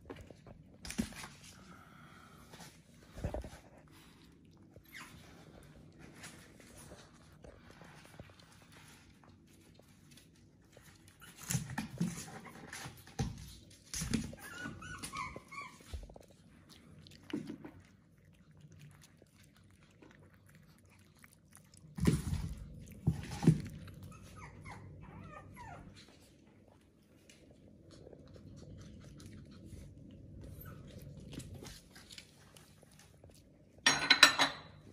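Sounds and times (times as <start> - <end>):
puppies whimpering: 14.2 - 16.2, 23.6 - 26.2.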